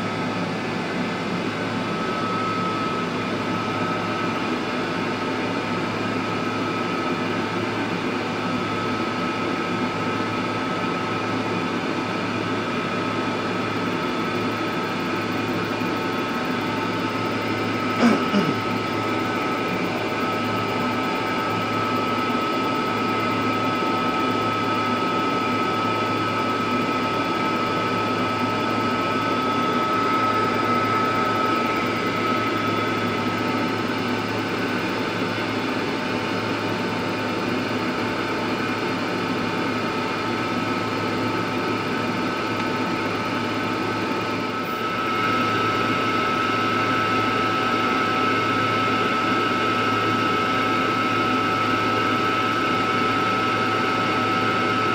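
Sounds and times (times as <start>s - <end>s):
extractor fan blowing hum: 0.0s - 24.6s
high steady whine: 41.0s - 54.9s.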